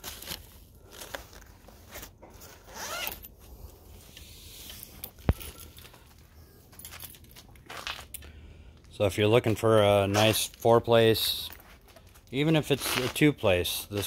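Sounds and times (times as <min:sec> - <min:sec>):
zipper being pulled: 0:00.9 - 0:03.3.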